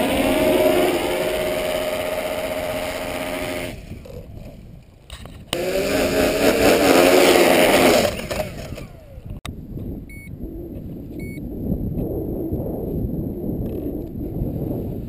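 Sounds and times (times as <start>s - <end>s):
drone motors buzzing: 0.0s - 4.2s, 5.5s - 9.4s.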